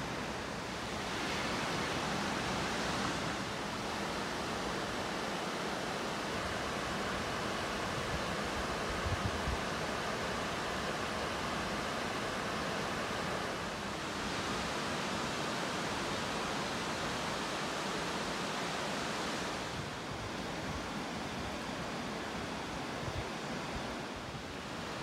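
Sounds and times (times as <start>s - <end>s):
water rushing over a weir: 0.0s - 25.0s.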